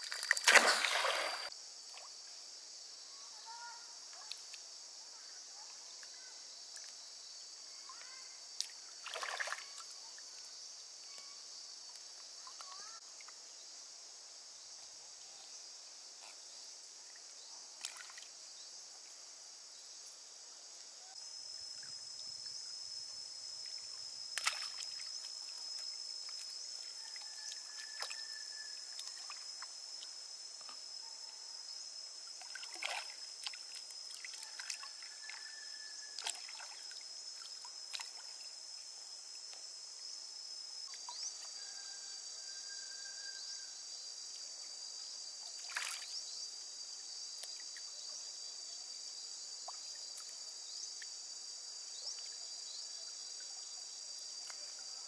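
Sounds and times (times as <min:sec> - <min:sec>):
water sloshing and dripping: 0:00.0 - 0:02.0, 0:08.6 - 0:09.8, 0:32.4 - 0:35.1
short water splashes: 0:00.1 - 0:01.5, 0:09.0 - 0:09.8, 0:32.4 - 0:34.8.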